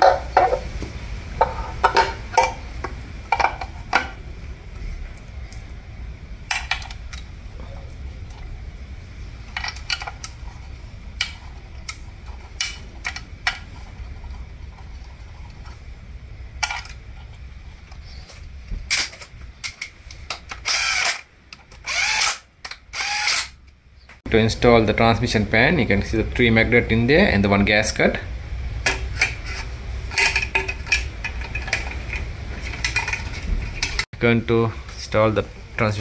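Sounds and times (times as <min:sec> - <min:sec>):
cordless drill bursts: 0:20.6 - 0:21.2, 0:21.8 - 0:23.6.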